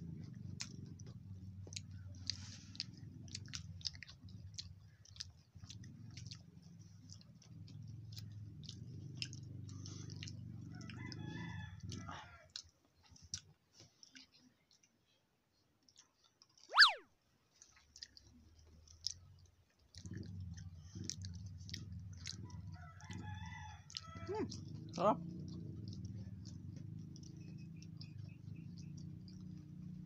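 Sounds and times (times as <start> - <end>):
chewing and lip smacking: 0.0 - 30.0
low background hum: 18.8 - 30.0.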